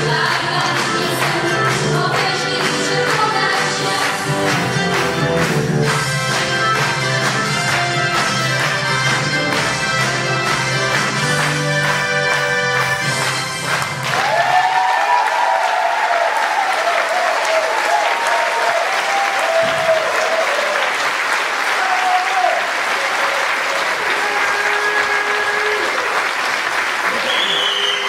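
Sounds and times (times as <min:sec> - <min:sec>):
audience applauding: 0:00.0 - 0:28.0
people cheering: 0:14.0 - 0:28.0.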